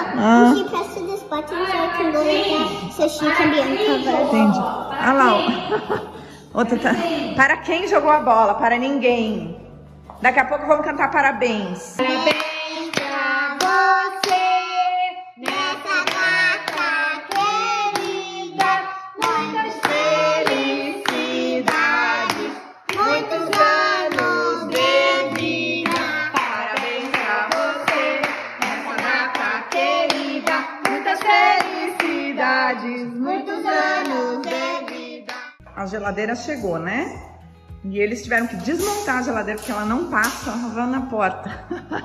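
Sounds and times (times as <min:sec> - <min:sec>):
people clapping in time: 0:12.0 - 0:14.5, 0:15.4 - 0:32.3, 0:34.0 - 0:35.6
group singing a celebration song: 0:12.0 - 0:35.6.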